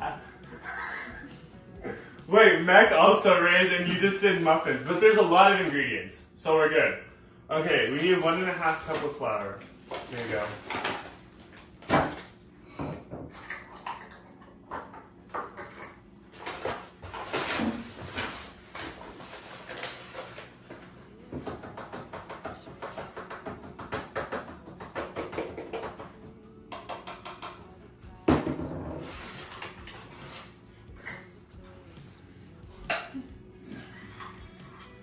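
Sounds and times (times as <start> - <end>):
flour bag rustling: 2.6 - 5.8, 7.7 - 11.9, 16.5 - 21.0.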